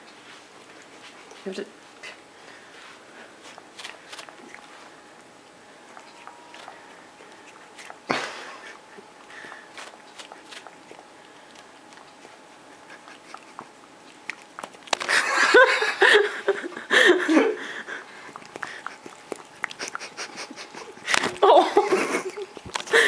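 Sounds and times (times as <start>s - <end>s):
cat licking: 3.4s - 8.1s, 8.7s - 15.0s, 18.1s - 21.1s
man laughing heartily: 8.1s - 9.1s, 15.0s - 18.1s, 19.8s - 23.0s.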